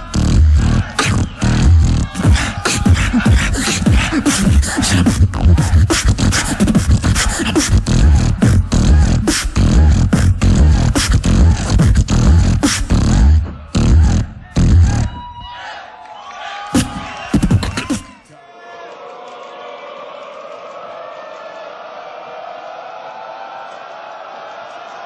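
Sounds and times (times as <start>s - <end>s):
beatboxing through microphone: 0.0s - 15.2s, 16.7s - 18.3s.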